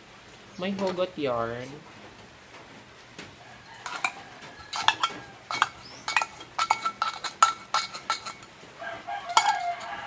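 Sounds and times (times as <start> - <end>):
fork scraping a tin can: 3.8 - 8.5, 9.2 - 10.0.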